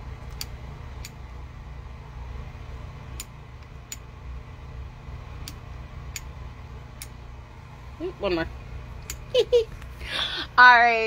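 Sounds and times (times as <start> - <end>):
steady low hum: 0.0 - 11.0
lamp switch clicking: 5.4 - 6.3.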